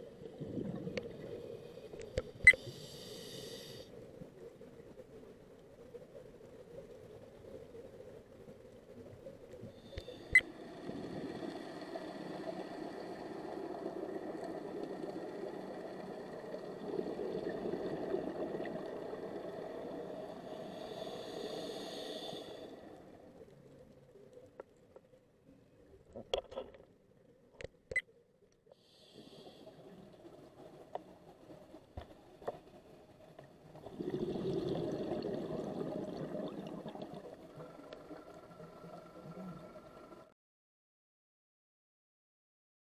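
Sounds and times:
boat engine droning underwater: 0:33.8 - 0:40.3.

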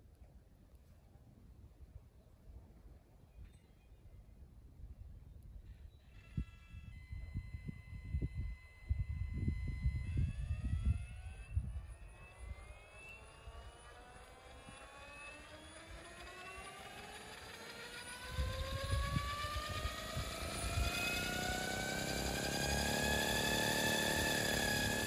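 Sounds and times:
wind rumble on microphone: 0:04.6 - 0:12.6, 0:18.3 - 0:21.8
model helicopter rotor whine: 0:05.5 - 0:25.0.

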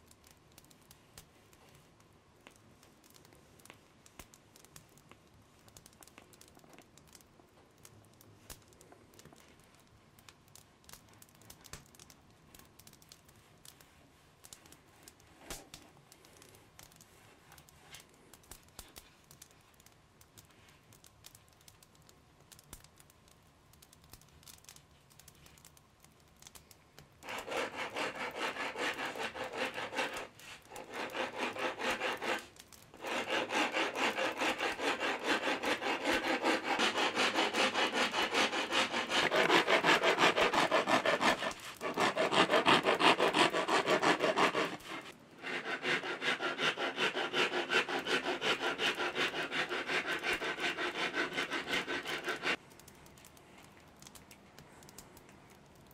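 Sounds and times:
hand rasp shaving wood: 0:27.2 - 0:52.6.

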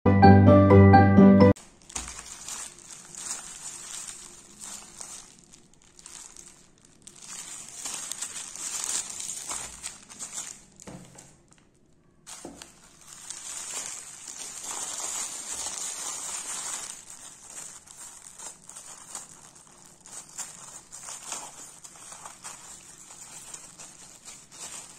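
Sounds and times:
scissors cutting plastic: 0:01.6 - 0:06.5, 0:07.4 - 0:11.4, 0:12.3 - 0:24.9
plastic bag crinkling: 0:01.6 - 0:24.9.

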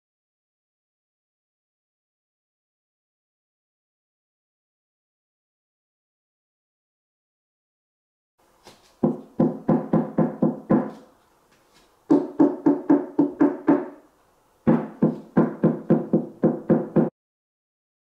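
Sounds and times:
knuckles knocking on speaker cabinet: 0:09.0 - 0:11.0, 0:12.1 - 0:14.0, 0:14.7 - 0:17.1.

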